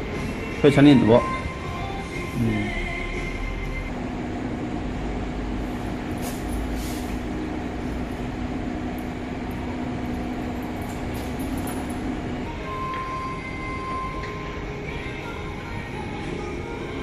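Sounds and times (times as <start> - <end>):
machine humming: 0.0 - 17.0.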